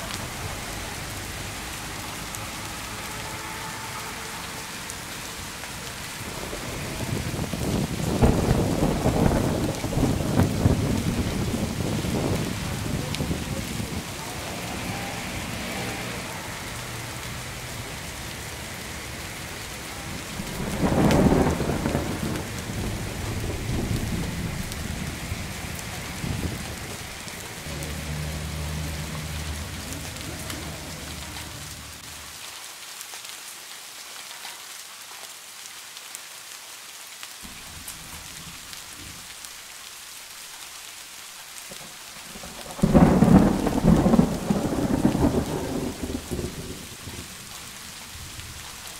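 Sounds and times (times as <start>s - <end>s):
rain on wet pavement: 0.0s - 48.9s
loud low rumbles: 5.1s - 32.3s.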